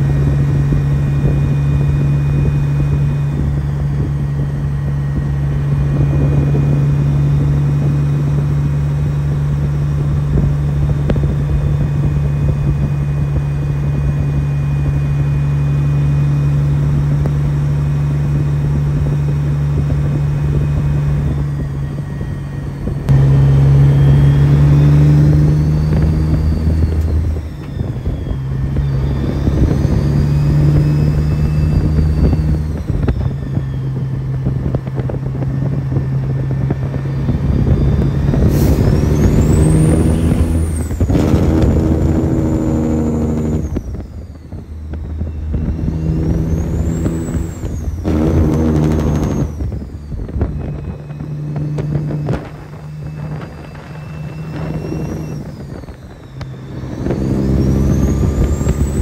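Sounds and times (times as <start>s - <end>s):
truck diesel engine running: 0.0s - 59.0s.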